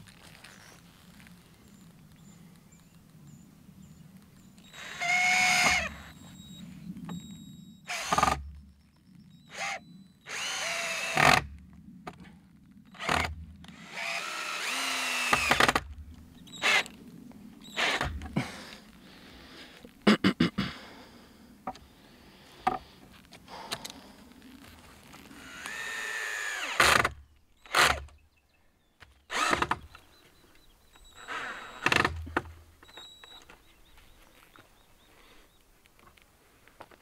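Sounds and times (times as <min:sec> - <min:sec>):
power drill whining: 0:04.6 - 0:07.2, 0:07.9 - 0:08.4, 0:09.4 - 0:11.5, 0:12.9 - 0:15.9, 0:16.5 - 0:17.0, 0:17.6 - 0:18.4, 0:25.3 - 0:28.1, 0:29.3 - 0:29.9, 0:31.0 - 0:32.4.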